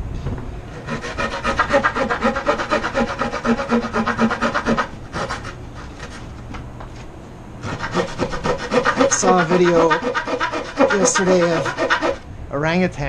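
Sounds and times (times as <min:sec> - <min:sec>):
hand saw cutting wood: 0:00.7 - 0:06.2, 0:07.6 - 0:12.2.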